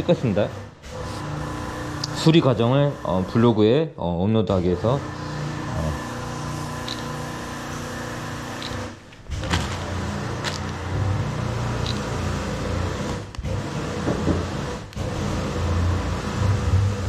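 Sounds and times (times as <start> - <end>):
steady mechanical hum: 0.0 - 17.0
phone camera shutter clicks: 6.8 - 7.2, 8.6 - 8.9, 11.8 - 12.1.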